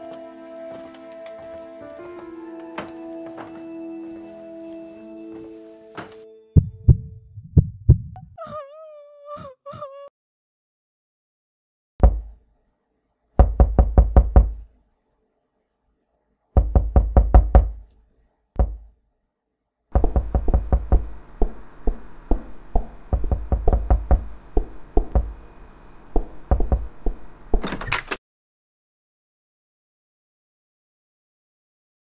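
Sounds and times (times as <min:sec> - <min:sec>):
knocking on wooden door: 0:12.0 - 0:12.3, 0:13.4 - 0:14.6, 0:16.6 - 0:17.8, 0:18.6 - 0:18.9, 0:20.0 - 0:25.4, 0:26.2 - 0:27.0
steady hiss: 0:20.0 - 0:27.6.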